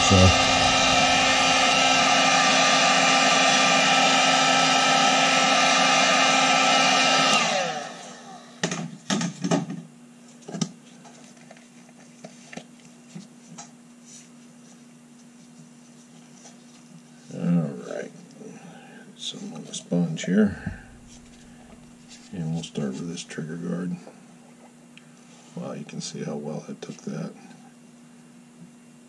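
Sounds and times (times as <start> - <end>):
heat gun fan whine: 0.0 - 10.2, 17.7 - 29.0.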